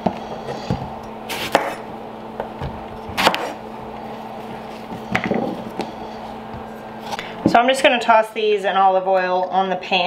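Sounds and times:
knife chopping on wooden board: 0.7s - 3.6s.

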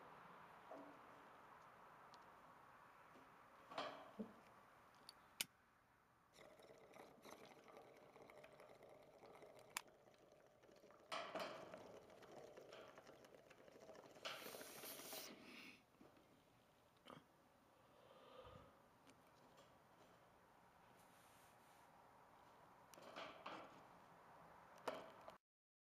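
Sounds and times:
soft rustling: 20.2s - 22.5s.

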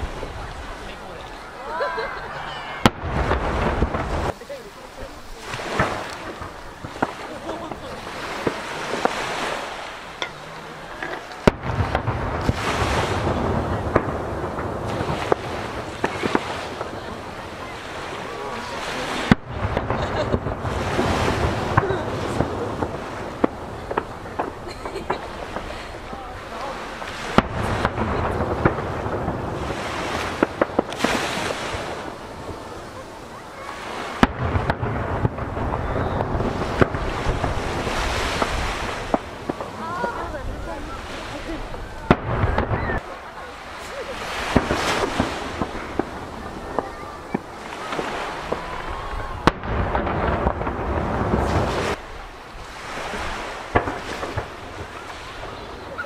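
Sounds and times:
fireworks bursting with echo: 0.0s - 56.0s
waves washing against jetty: 0.0s - 56.0s.

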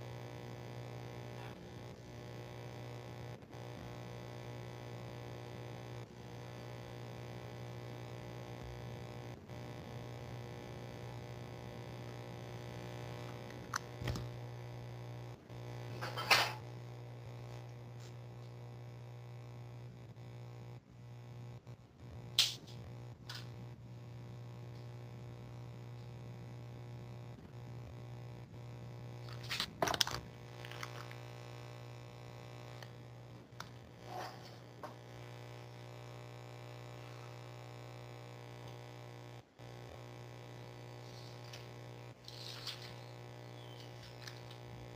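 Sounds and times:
low electrical hum: 0.0s - 44.9s
small clicks: 13.2s - 14.3s, 22.3s - 23.6s, 29.2s - 31.3s, 32.7s - 33.8s, 41.1s - 44.7s.

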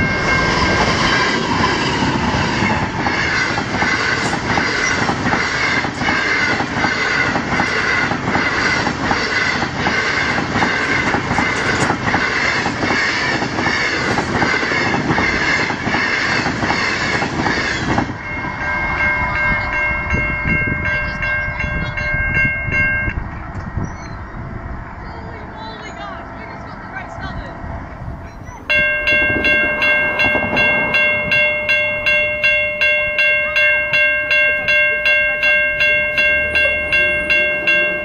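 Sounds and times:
level crossing bells ringing: 0.0s - 1.1s, 18.2s - 23.3s, 28.3s - 38.0s
train wheels clickety-clack: 0.0s - 18.5s.

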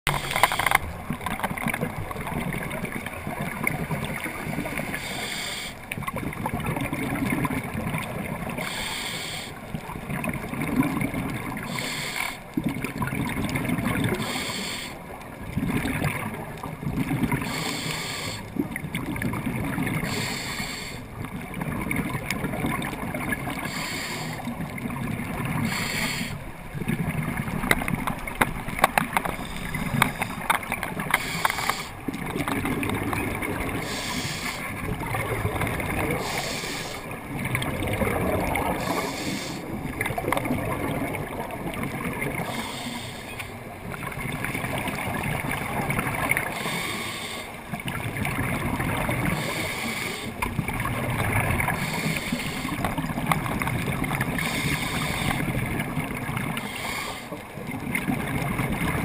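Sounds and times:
bubbling exhaled air: 0.1s - 59.0s
scuba regulator hissing inhalations: 4.9s - 5.8s, 8.6s - 9.6s, 11.7s - 12.4s, 14.2s - 15.0s, 17.4s - 18.5s, 20.0s - 21.0s, 23.6s - 24.4s, 25.6s - 26.4s, 31.1s - 32.0s, 33.8s - 34.7s, 36.2s - 37.1s, 38.8s - 39.7s, 42.4s - 43.5s, 46.5s - 47.6s, 49.4s - 50.4s, 51.8s - 52.8s, 54.4s - 55.5s, 56.6s - 57.4s.

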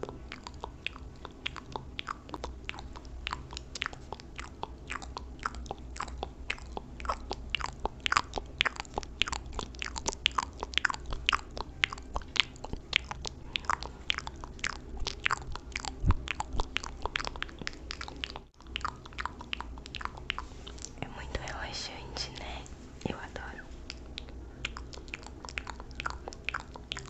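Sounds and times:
wet mouth clicks and smacks: 0.0s - 27.0s.

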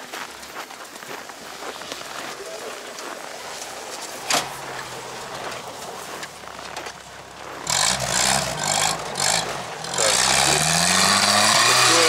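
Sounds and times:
off-road vehicle engine revving: 3.2s - 12.0s.

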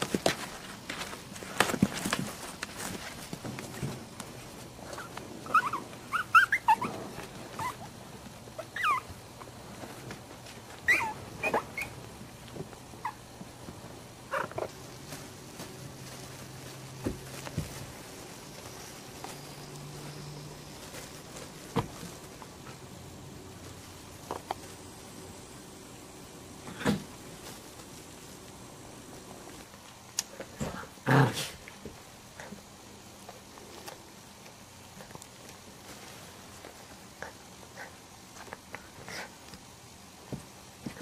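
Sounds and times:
puppies yipping and squeaking: 4.9s - 7.9s, 8.6s - 9.1s, 10.8s - 12.0s.

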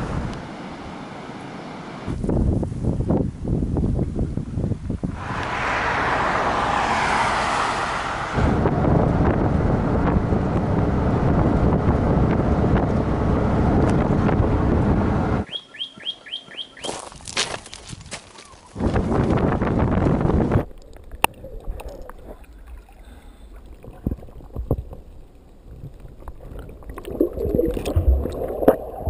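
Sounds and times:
wind and road noise: 0.0s - 22.8s, 23.6s - 29.0s
wind buffeting the microphone: 2.1s - 6.4s, 8.2s - 15.4s, 17.8s - 21.4s
bird chirping: 15.4s - 17.0s.

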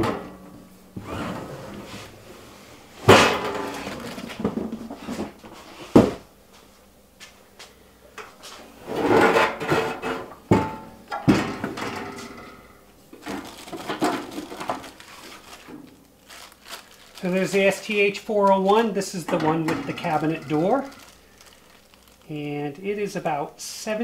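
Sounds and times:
cabinet scraping on workbench: 1.0s - 2.4s, 8.8s - 10.3s.

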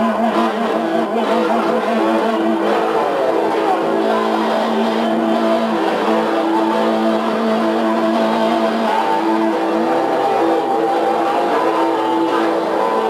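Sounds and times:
electric guitar through amplifier: 0.0s - 13.0s.

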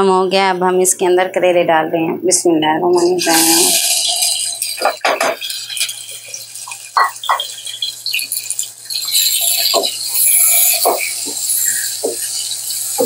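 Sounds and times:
vegetables sizzling in hot fat: 2.9s - 13.0s
crackles and pops: 3.2s - 13.0s.

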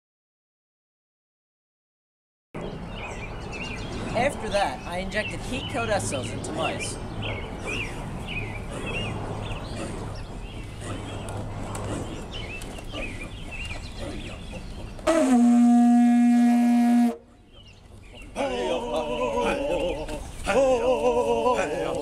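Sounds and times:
faint birds chirping: 2.6s - 15.6s, 17.2s - 22.0s
vuvuzela blast: 15.1s - 17.2s.

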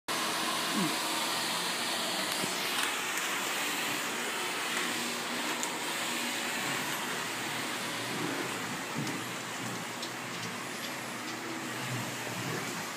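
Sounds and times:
vacuum cleaner running: 0.1s - 12.9s.

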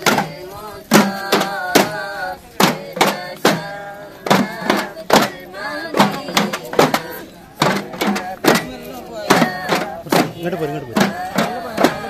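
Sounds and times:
boys chanting in unison: 0.0s - 12.0s
frame drums beating: 0.0s - 12.0s.

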